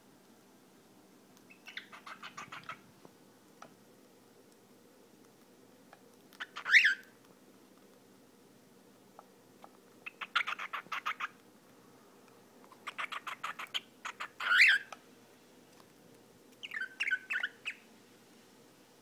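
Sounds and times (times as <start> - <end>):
cockatiel chirping: 1.5 - 2.8, 6.4 - 7.1, 10.0 - 11.4, 12.7 - 15.0, 16.6 - 17.9.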